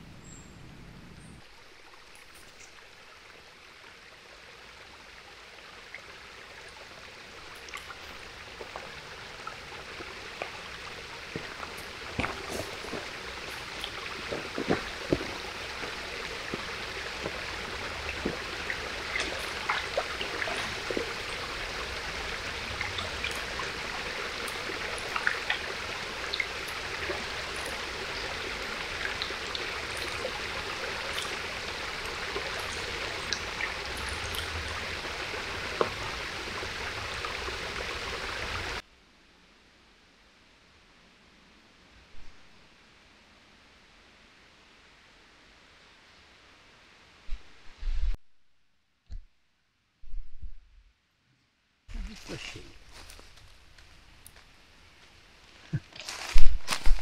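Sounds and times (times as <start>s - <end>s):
stream trickling over stones: 1.4s - 38.8s, 51.9s - 57.0s
footsteps on dry leaves: 52.0s - 57.0s.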